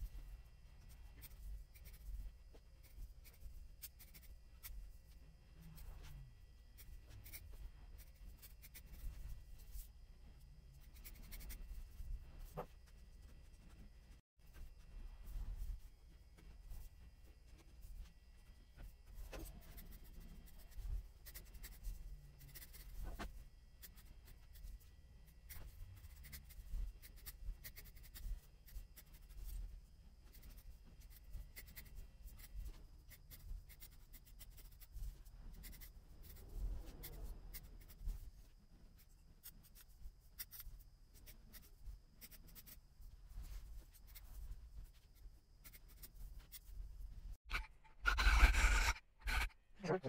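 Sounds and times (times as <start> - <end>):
scissors snipping yarn: 25.3 - 29.6.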